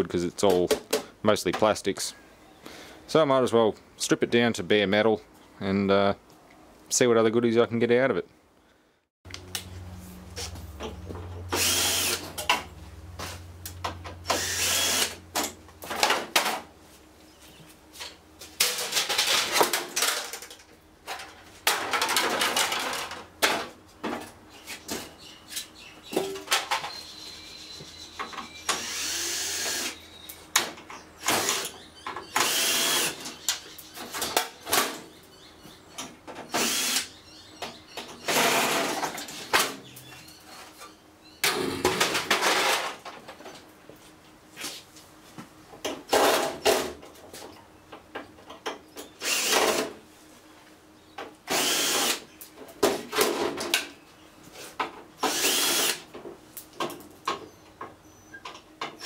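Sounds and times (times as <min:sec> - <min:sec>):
cordless drill running: 0:11.5 - 0:12.2, 0:14.3 - 0:15.2, 0:28.7 - 0:30.0, 0:31.3 - 0:31.7, 0:32.4 - 0:33.2, 0:36.6 - 0:37.1, 0:49.2 - 0:49.6, 0:51.5 - 0:52.2, 0:55.3 - 0:56.0.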